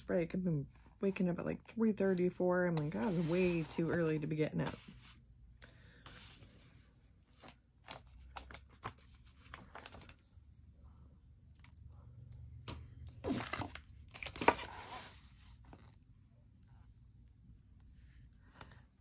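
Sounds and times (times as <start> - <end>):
paper rustling and crinkling: 6.1 - 10.4, 13.1 - 16.0.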